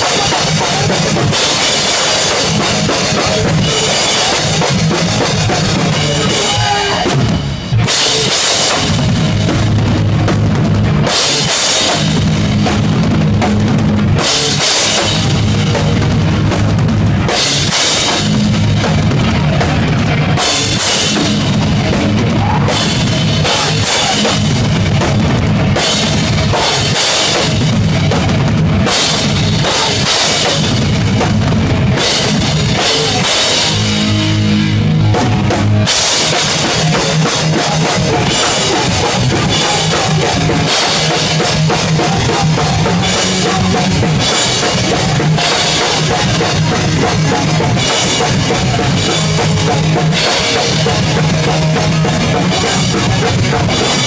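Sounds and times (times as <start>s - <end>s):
distorted electric guitar: 0.0s - 54.0s
pounding drums: 0.0s - 54.0s
punk band playing live: 0.0s - 54.0s.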